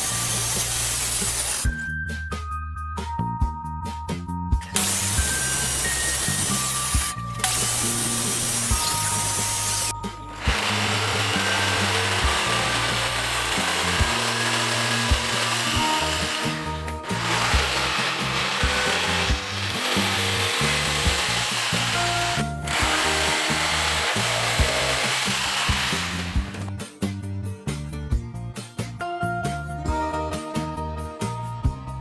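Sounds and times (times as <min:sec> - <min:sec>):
electric jigsaw cutting plywood: 0:00.0 - 0:01.7, 0:04.8 - 0:26.7
background music: 0:00.0 - 0:32.0.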